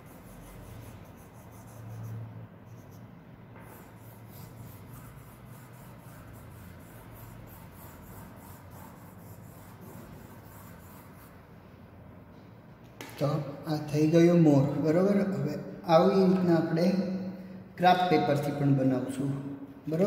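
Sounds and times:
oil pastel scraping on paper: 0:00.0 - 0:11.4.

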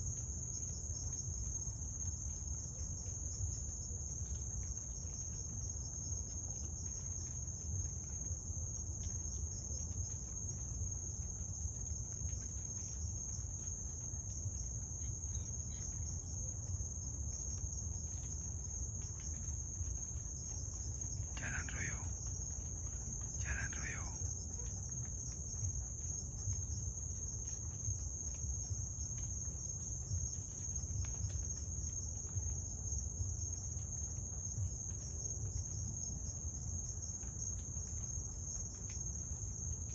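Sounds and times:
night cricket chorus trilling: 0:00.0 - 0:39.9.

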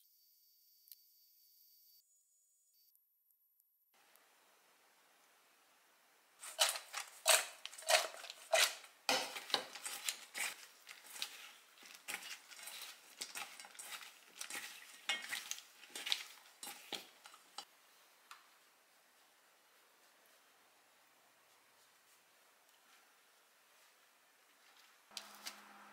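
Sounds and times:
potato slices clattering in steel bowl: 0:06.4 - 0:17.6.

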